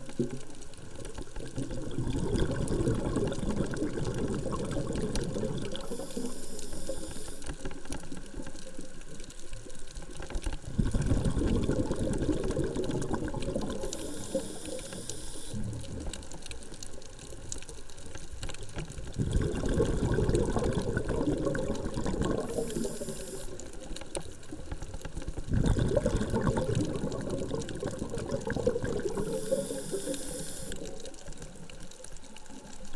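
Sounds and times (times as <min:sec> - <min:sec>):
exhaled bubbles gurgling underwater: 0:00.0 - 0:32.9
regulator inhale hiss: 0:05.7 - 0:07.8, 0:13.7 - 0:15.8, 0:22.4 - 0:23.9, 0:29.0 - 0:31.2.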